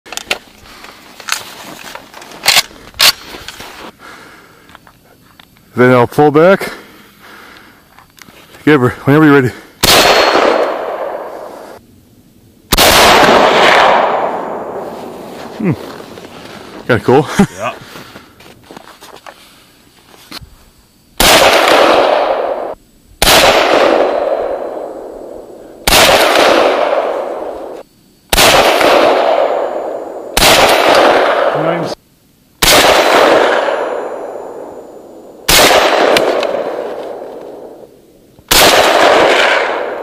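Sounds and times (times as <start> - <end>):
rifle shots echoing: 9.8 - 11.7, 12.7 - 15.3, 21.2 - 32.0, 32.6 - 37.9, 38.5 - 40.0.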